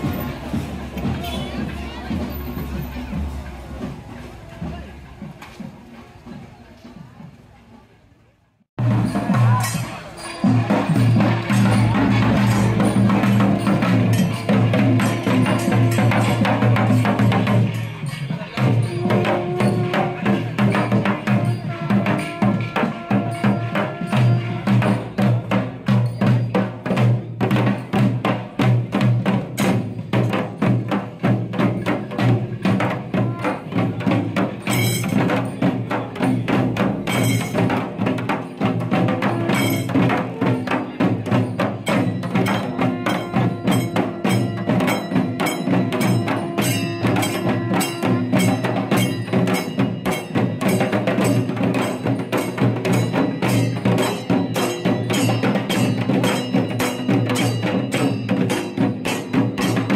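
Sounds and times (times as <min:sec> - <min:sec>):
barrel drums beating: 0:00.0 - 0:07.4, 0:08.8 - 0:59.9
hand cymbals ringing: 0:08.9 - 0:28.4, 0:29.5 - 0:59.9.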